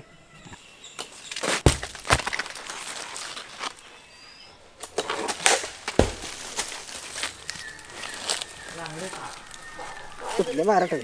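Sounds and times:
leaves and branches rustling: 0.6 - 11.0
heavy fruit thudding onto earth: 1.4 - 3.6, 5.0 - 7.3.

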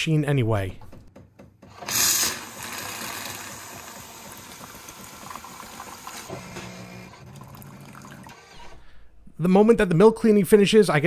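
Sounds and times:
coffee machine hissing and trickling: 1.8 - 8.8.

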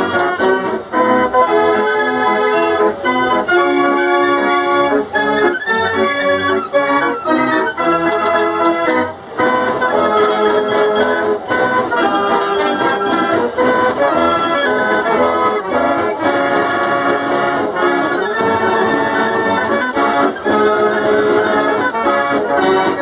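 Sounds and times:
fairground organ pipes playing: 0.0 - 23.0
organ drums beat: 9.4 - 23.0.

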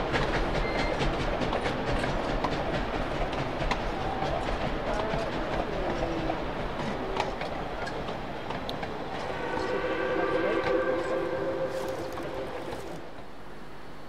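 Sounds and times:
moving train rumble and wheel clicks: 0.0 - 14.0
steam locomotive whistle chord: 9.1 - 13.4.

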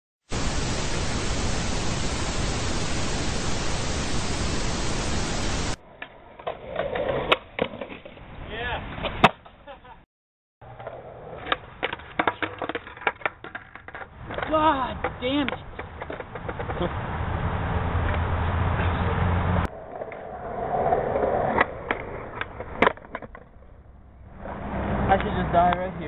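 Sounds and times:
static hiss: 0.3 - 5.8
skateboard wheels rolling: 4.6 - 10.0, 10.6 - 26.0
skateboard clacks and snaps: 6.0 - 8.2, 9.0 - 9.6, 10.7 - 16.8, 21.5 - 23.8.

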